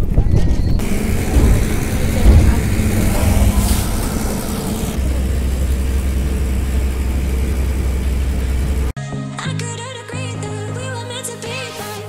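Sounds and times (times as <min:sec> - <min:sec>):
hiss: 0:00.8 - 0:05.9
boat engine drone: 0:00.8 - 0:08.9.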